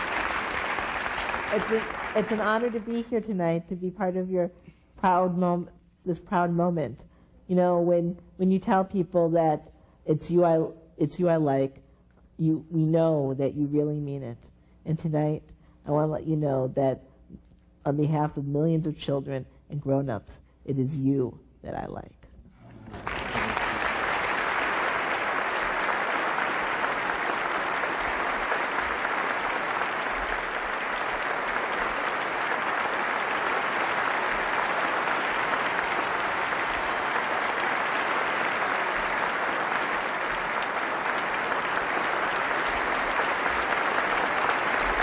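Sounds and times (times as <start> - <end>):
large audience applauding: 0.0 - 3.1, 22.8 - 45.0.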